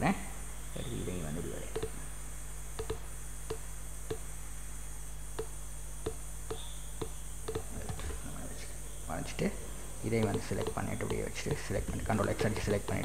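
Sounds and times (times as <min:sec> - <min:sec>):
low electrical hum: 0:00.0 - 0:13.0
computer mouse clicking: 0:01.7 - 0:01.9, 0:02.8 - 0:04.2, 0:05.4 - 0:08.2, 0:10.2 - 0:13.0.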